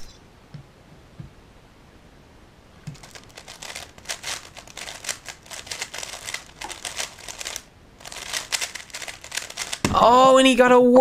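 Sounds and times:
puzzle cube plastic clicks: 2.9 - 9.9.

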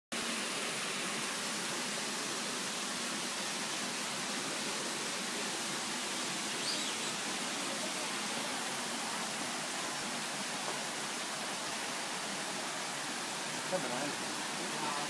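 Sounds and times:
small waterfall splashing into pond: 0.1 - 15.0
faint high chirp: 6.6 - 7.2.

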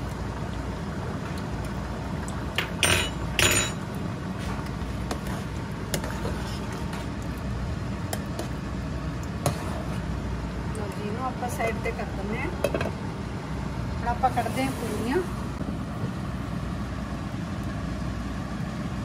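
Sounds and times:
spoon scraping pot: 4.4 - 7.1, 9.4 - 10.1
metal spoon stirring in a pot: 4.4 - 7.2, 9.3 - 10.1.

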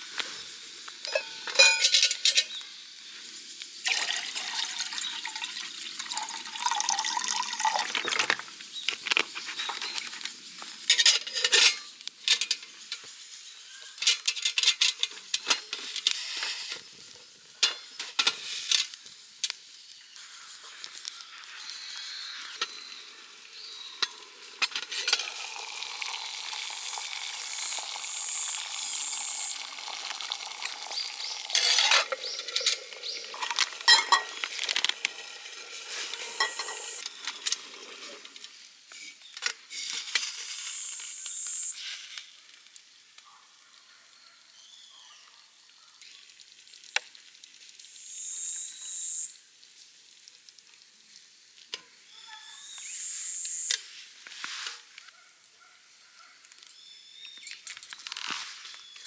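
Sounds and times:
metal pot lid clinking: 1.1 - 2.5, 10.9 - 12.6, 31.6 - 34.4, 36.4 - 37.0
wood fire crackling and popping: 20.6 - 22.6.

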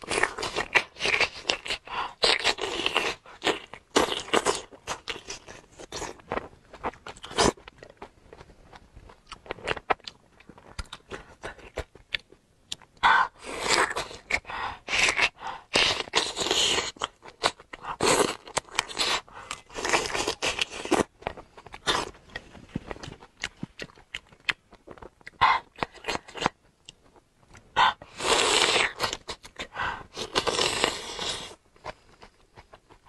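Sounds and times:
sucking and chewing: 0.0 - 33.0.

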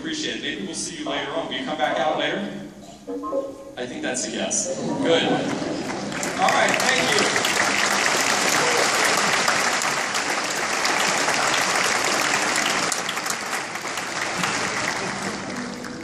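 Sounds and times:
audience applauding: 5.1 - 16.0.

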